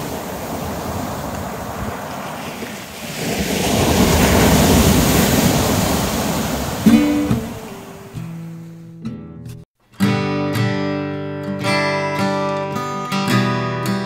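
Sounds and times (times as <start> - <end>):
acoustic guitar music: 6.8 - 14.0.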